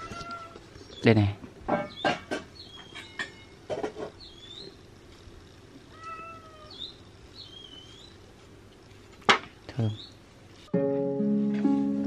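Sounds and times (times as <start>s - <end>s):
cat meowing: 0.0s - 0.6s, 5.9s - 6.9s.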